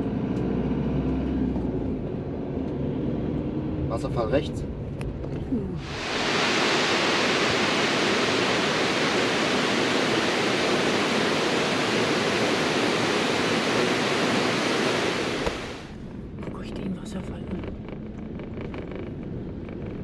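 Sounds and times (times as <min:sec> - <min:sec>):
waterfall rushing: 0:05.8 - 0:16.0.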